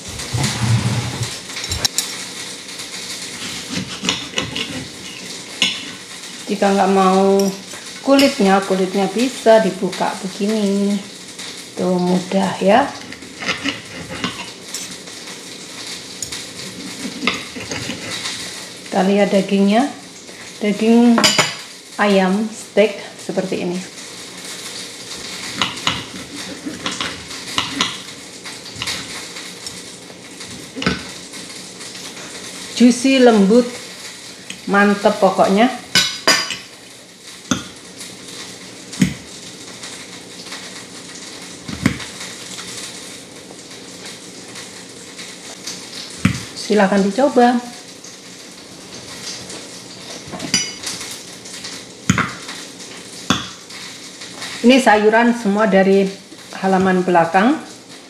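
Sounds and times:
steady hiss: 0:00.0 - 0:58.0
cutlery scraping a plate: 0:03.4 - 0:06.0, 0:13.1 - 0:15.0, 0:16.2 - 0:18.4, 0:25.4 - 0:28.0, 0:50.3 - 0:51.0
cutlery clinking on a plate: 0:21.2 - 0:21.7, 0:50.3 - 0:50.9.

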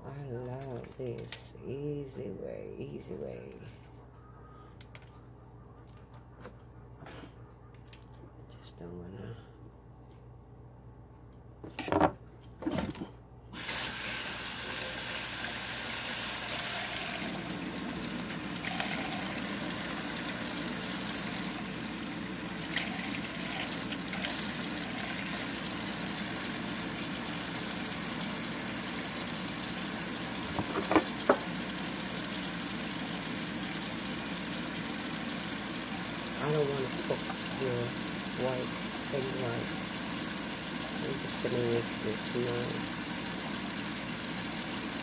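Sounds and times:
tap running into sink: 0:30.4 - 0:31.6.

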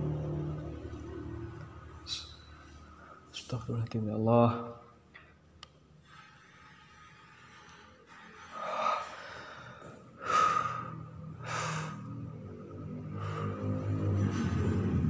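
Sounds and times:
low background music: 0:08.0 - 0:15.0
person gasping breaths: 0:08.6 - 0:12.1.

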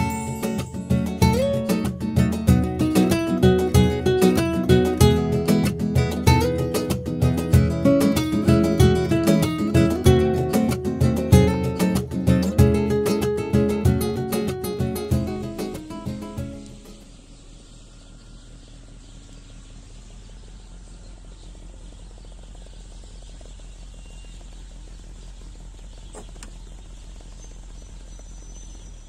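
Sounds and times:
guitar music: 0:00.0 - 0:17.1
insects chirring: 0:14.1 - 0:29.0
sharp click: 0:26.1 - 0:26.6.

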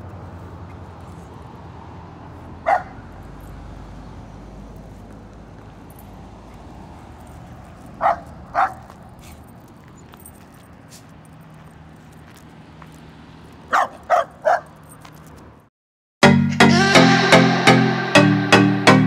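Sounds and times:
dog barking: 0:02.6 - 0:03.1, 0:08.0 - 0:09.0, 0:13.7 - 0:14.8.

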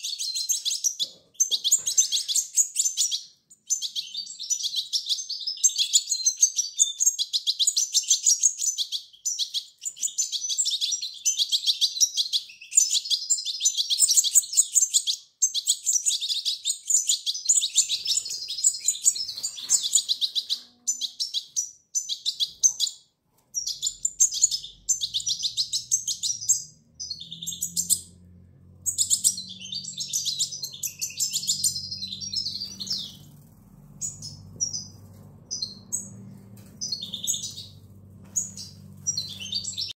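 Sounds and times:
low hum: 0:26.7 - 0:39.9.

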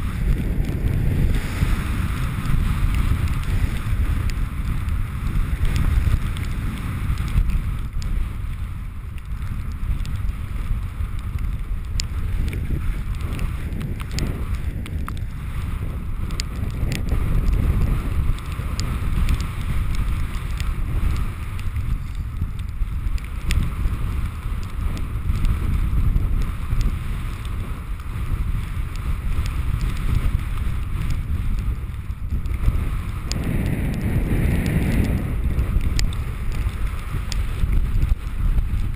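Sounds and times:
wind buffeting microphone: 0:00.0 - 0:38.9
faint clicks: 0:02.4 - 0:38.9.

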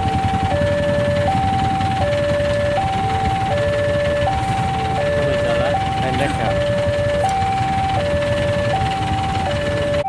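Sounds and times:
two-tone crossing alarm: 0:00.0 - 0:10.0.

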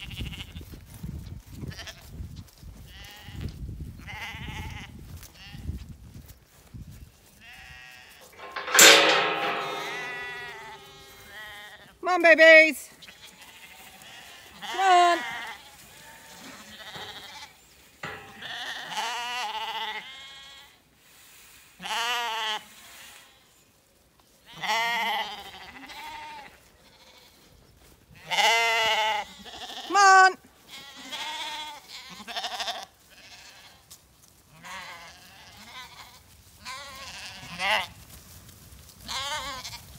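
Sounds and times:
lambs bleating: 0:00.0 - 0:00.6, 0:02.9 - 0:05.7, 0:07.4 - 0:08.2, 0:13.0 - 0:17.5, 0:21.8 - 0:23.3, 0:24.5 - 0:27.4, 0:28.2 - 0:33.9, 0:34.5 - 0:38.0, 0:39.0 - 0:39.8.

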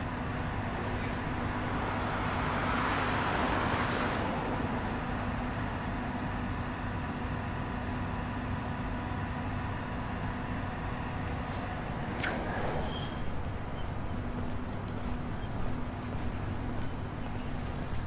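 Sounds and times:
city traffic noise: 0:00.0 - 0:18.0
vehicle passing: 0:00.5 - 0:05.2.

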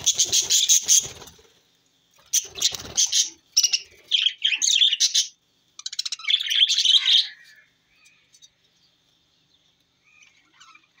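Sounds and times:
budgerigars chirping: 0:00.0 - 0:01.3, 0:02.3 - 0:08.3.

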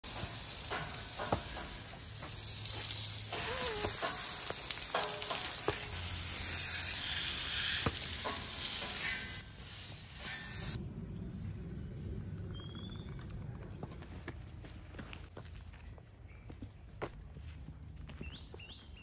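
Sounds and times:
hose spraying water: 0:00.0 - 0:10.8.

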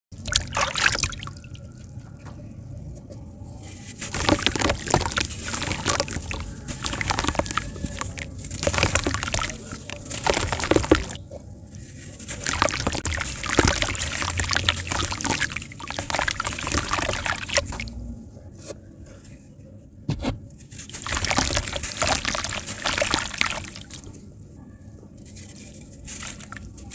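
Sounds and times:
hands splashing in water: 0:00.2 - 0:01.5, 0:04.0 - 0:11.2, 0:12.0 - 0:18.0, 0:20.9 - 0:24.1, 0:26.1 - 0:26.9
sand crumbling gritty crackling: 0:03.6 - 0:18.0, 0:20.7 - 0:24.1, 0:25.2 - 0:26.9.

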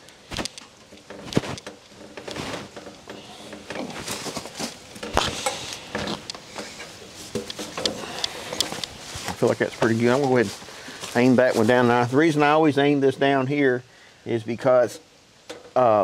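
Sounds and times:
metal clanks and knocks: 0:00.4 - 0:08.9.

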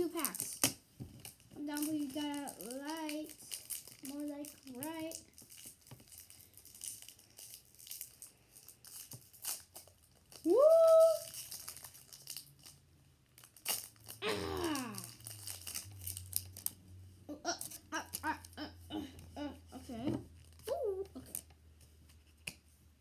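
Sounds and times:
foil wrapper crinkling and tearing: 0:00.0 - 0:16.8.

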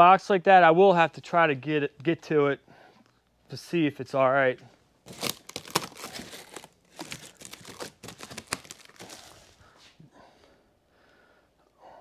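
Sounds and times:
plastic stretch wrap crinkling: 0:05.0 - 0:09.6.

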